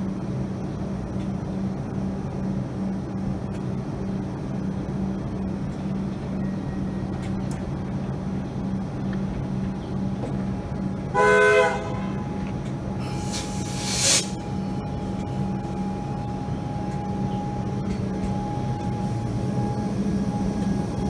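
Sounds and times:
electric train humming: 0.0 - 21.0
train horn blast: 11.1 - 12.4.

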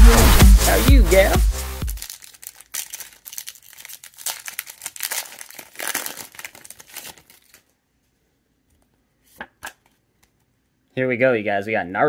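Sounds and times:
plastic wrapper crinkling and tearing: 1.8 - 7.8.

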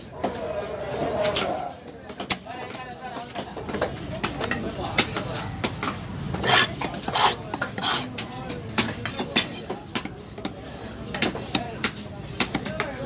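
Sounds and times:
gloved hand scraping wooden block: 5.8 - 8.2.

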